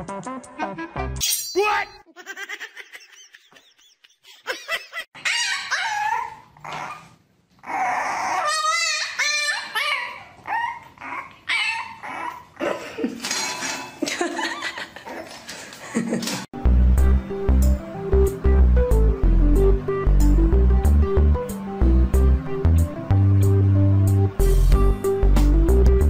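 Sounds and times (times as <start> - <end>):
puppy whining and yipping: 5.2 - 12.6.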